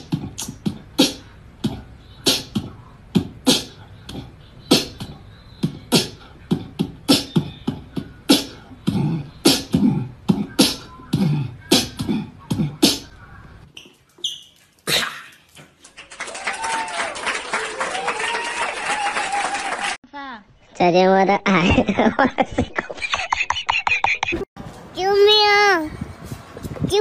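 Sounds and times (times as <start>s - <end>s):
beatboxing: 0.0s - 13.2s.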